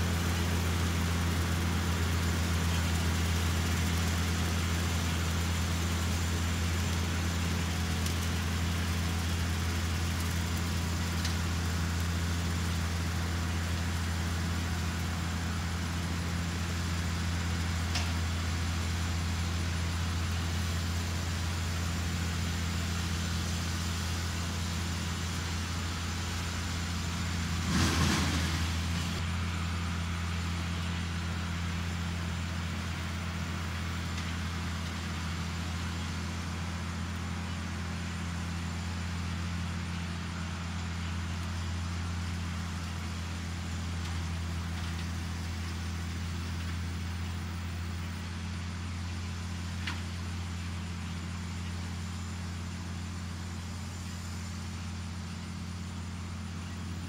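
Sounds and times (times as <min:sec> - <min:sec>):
tractor engine droning: 0:00.0 - 0:57.0
brief loud burst of noise: 0:27.6 - 0:29.2.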